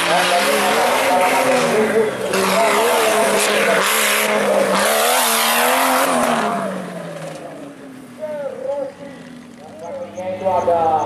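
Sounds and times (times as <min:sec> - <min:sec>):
engine revving hard: 0:00.0 - 0:07.4
spinning tyres rushing: 0:00.0 - 0:11.0.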